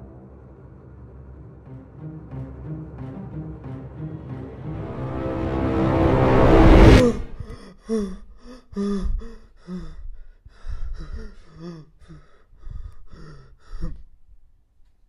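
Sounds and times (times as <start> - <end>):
man gasping and breathing hard: 7.2 - 14.2.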